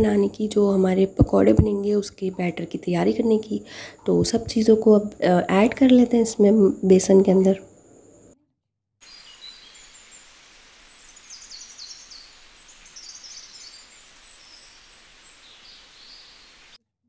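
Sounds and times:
steady background hiss: 0.0 - 8.4, 9.0 - 16.8
small birds chirping: 9.0 - 16.8.

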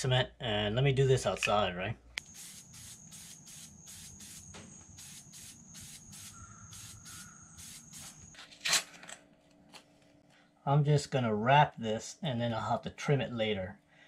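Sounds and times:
aerosol can spraying in pulses: 2.2 - 8.3.

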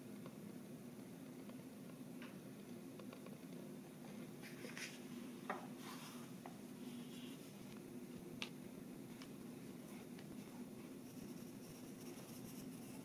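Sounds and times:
pencil scratching on paper: 11.0 - 13.0.

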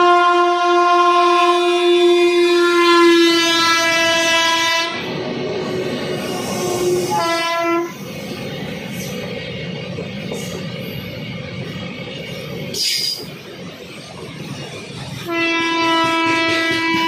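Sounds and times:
locomotive air horn: 0.0 - 5.0, 6.6 - 8.0, 15.3 - 17.0
wagons rumbling on rails: 2.2 - 17.0.

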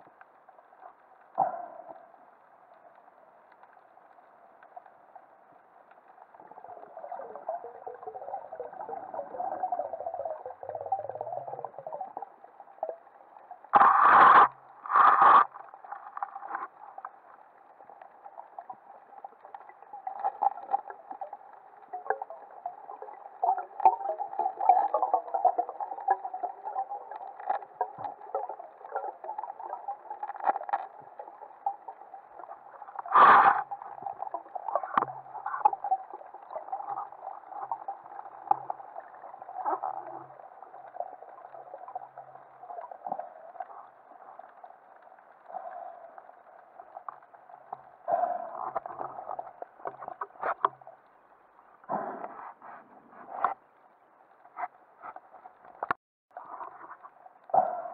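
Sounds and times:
faint crackles and knocks: 0.0 - 57.9
underwater water hiss: 13.8 - 15.8, 33.0 - 35.0.

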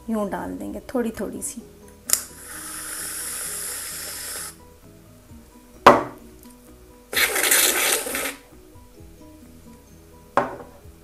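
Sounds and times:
light background music: 0.0 - 11.0
aerosol can spraying: 2.1 - 4.6, 7.1 - 8.4.

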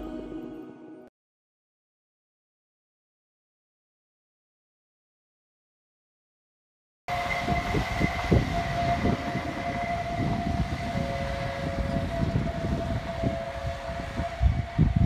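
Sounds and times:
railway warning tone: 7.1 - 15.0
wind rumbling on microphone: 7.1 - 15.0.

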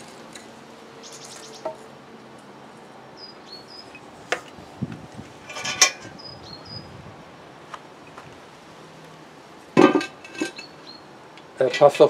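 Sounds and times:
metal tongs clinking on charcoal: 5.4 - 6.2.

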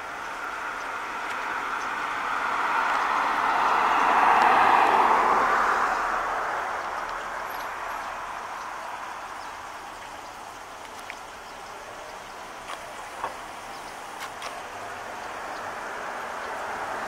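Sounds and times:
vehicle driving past: 1.6 - 8.3.

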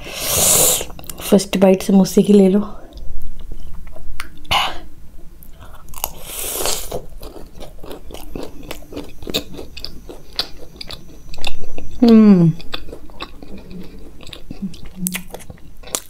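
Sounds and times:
biting and chewing food: 5.4 - 16.0.

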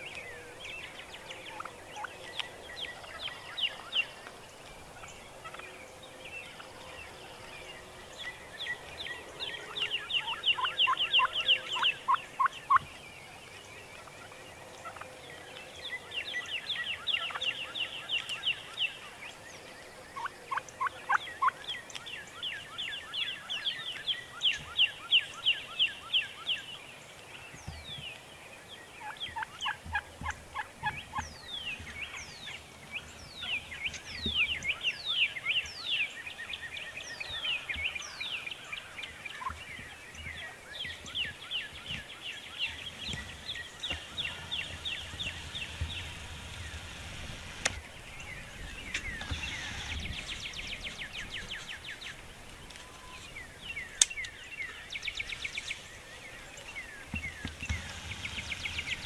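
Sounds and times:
turkeys gobbling: 0.8 - 5.7, 9.6 - 12.9, 13.9 - 15.1, 16.6 - 17.4, 20.2 - 21.6, 29.0 - 32.6, 39.3 - 39.6, 42.6 - 47.8, 57.0 - 59.0.

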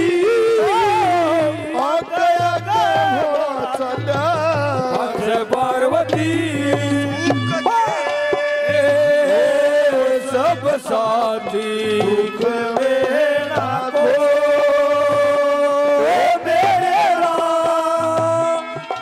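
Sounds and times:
steady hand drum beat: 0.0 - 9.5.

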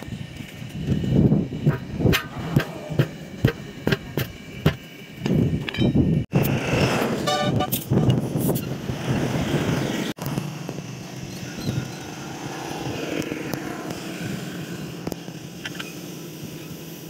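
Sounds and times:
sledgehammer hitting tyre and rim: 1.7 - 4.8.

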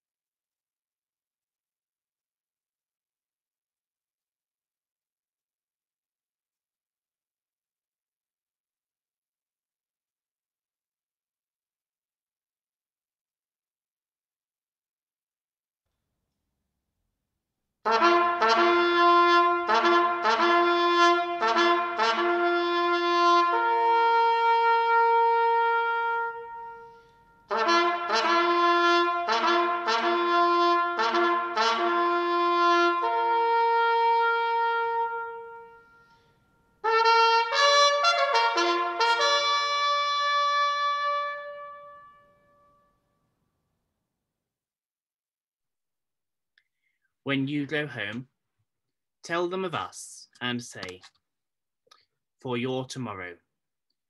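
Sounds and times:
solo bugle call: 17.8 - 42.8.

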